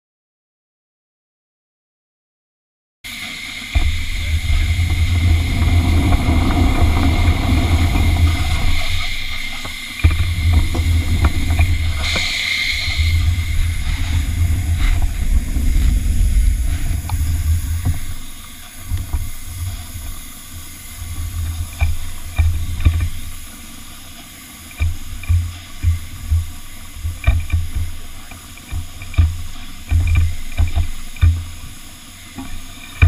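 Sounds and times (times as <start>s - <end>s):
steam locomotive hissing: 3.1s - 33.0s
low rumble: 3.7s - 24.2s.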